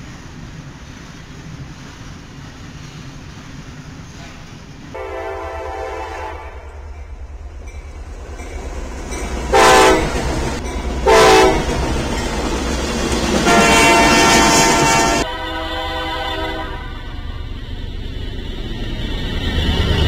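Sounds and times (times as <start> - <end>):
low rumble of passing train: 0.0 - 20.0
locomotive horn blasts: 5.0 - 6.9, 9.5 - 10.3, 11.0 - 11.8, 13.4 - 17.3.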